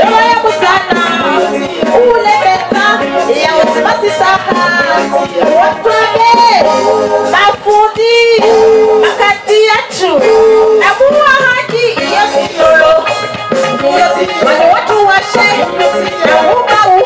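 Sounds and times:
woman singing into a microphone: 0.0 - 17.0.

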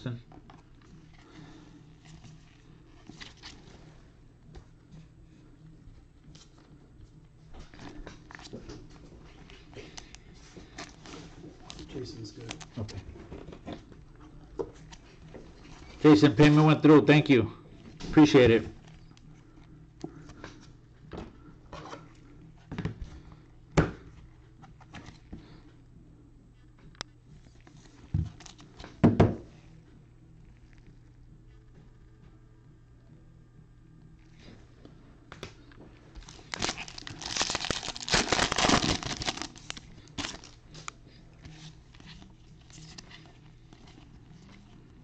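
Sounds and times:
low steady hum: 0.0 - 45.0
cards rustling and clicking: 7.6 - 16.2, 35.3 - 45.0.

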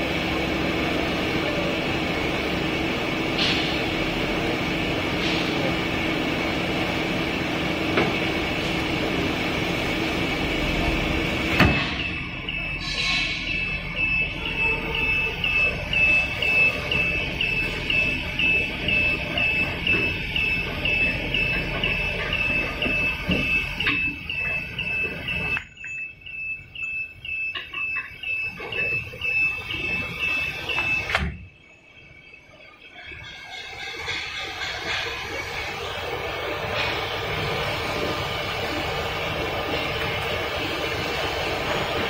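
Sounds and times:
low machine noise: 0.0 - 42.0
high chirping alarm beeps: 10.5 - 42.0.

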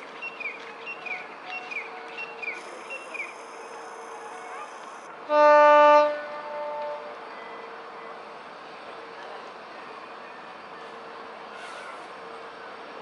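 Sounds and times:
diesel locomotive horn: 2.6 - 8.0.

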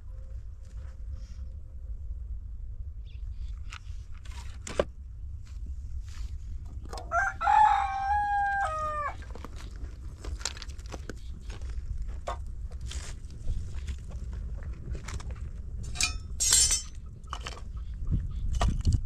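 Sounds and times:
rooster crowing: 7.1 - 9.2.

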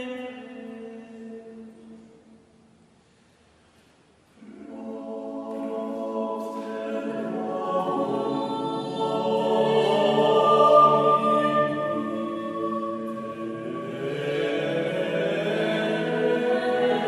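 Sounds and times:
choir singing in overlapping parts: 4.4 - 17.0.

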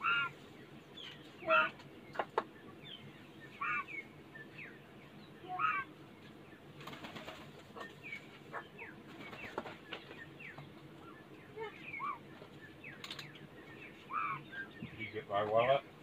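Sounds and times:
birds chirping and whistling: 0.0 - 6.7, 7.7 - 15.8
bird wings flapping: 6.8 - 8.0, 9.1 - 10.1.

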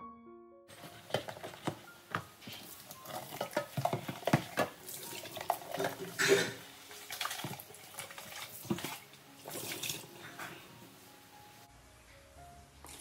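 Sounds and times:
water sloshing: 0.8 - 10.9
water splash: 3.0 - 10.1
plastic jug knocking on steel sink: 3.1 - 4.8.

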